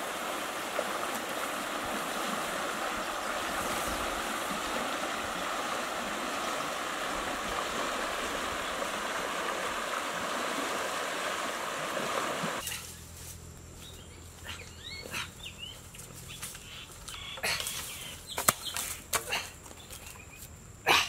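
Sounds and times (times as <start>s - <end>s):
river water rushing: 0.0s - 12.6s
footsteps rustling through dry leaves: 12.6s - 13.9s
bird chirps: 13.8s - 18.9s.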